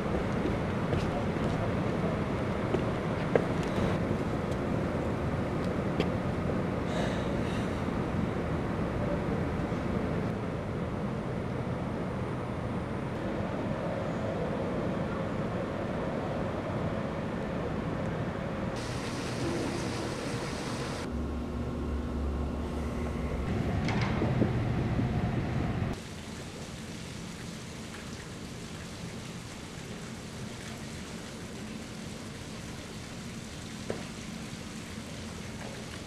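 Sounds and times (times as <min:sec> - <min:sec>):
steady hiss: 0:18.8 - 0:21.1, 0:25.9 - 0:36.0
low rumble and hum: 0:18.8 - 0:26.4.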